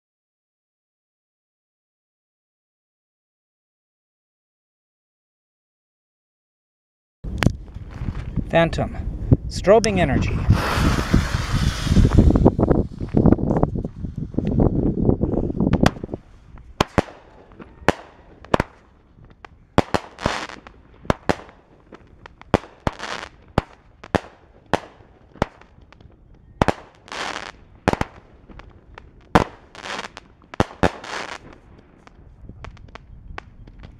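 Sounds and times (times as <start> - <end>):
low rumble: 10.2 - 16.7
firework launch thumps and bangs: 10.5 - 14.0, 15.7 - 16.2
crackling fizzing firework stars: 10.5 - 33.9.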